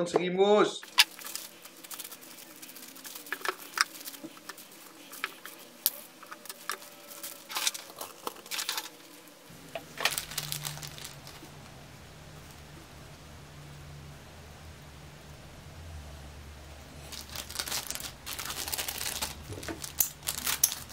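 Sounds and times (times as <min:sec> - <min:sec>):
plastic bags crinkling: 0:00.8 - 0:12.6, 0:17.0 - 0:20.9
steady low hum: 0:00.8 - 0:20.9.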